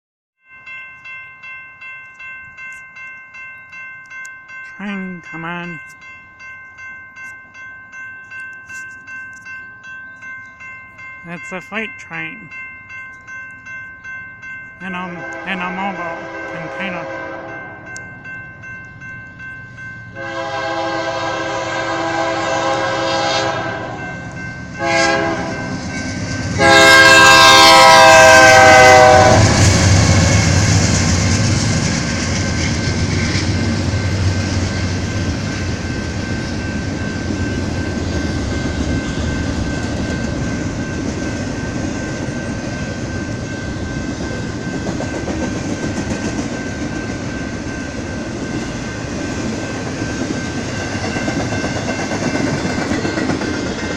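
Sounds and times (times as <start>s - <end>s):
rail cars clattering: 0.5s - 53.9s
locomotive air horn blasts: 15.2s - 17.6s, 20.2s - 24.0s, 24.8s - 25.7s, 26.6s - 29.6s.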